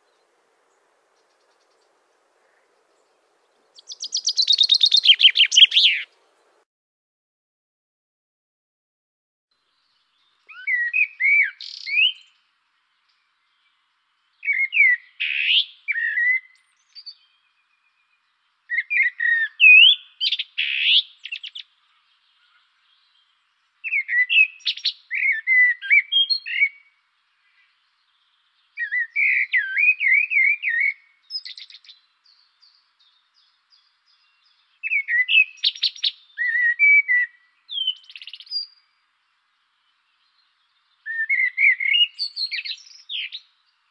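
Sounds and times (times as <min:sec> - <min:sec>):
songbird warbling: 0:00.0 - 0:06.6, 0:10.2 - 0:12.4, 0:14.4 - 0:18.0, 0:18.7 - 0:39.0, 0:39.8 - 0:43.9.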